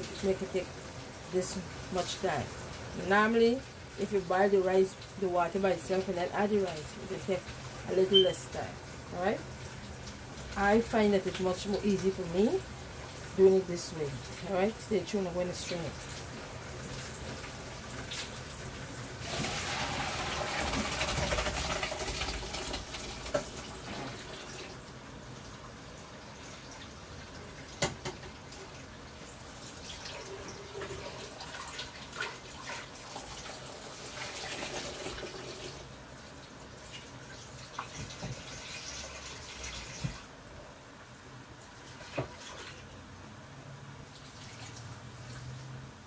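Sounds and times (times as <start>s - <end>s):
water pouring into sink: 16.0s - 24.9s, 26.2s - 35.9s, 36.8s - 40.3s.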